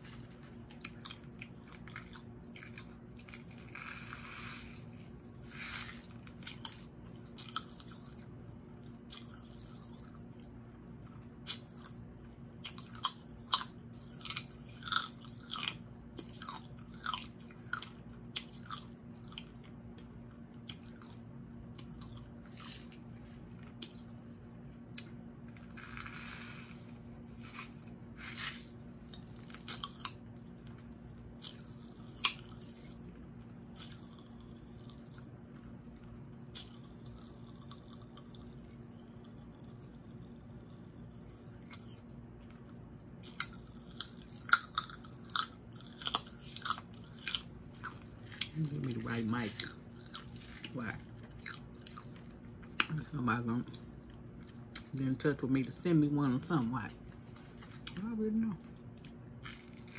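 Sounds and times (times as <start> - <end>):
popping candy crackling in mouth: 36.5 - 42.0.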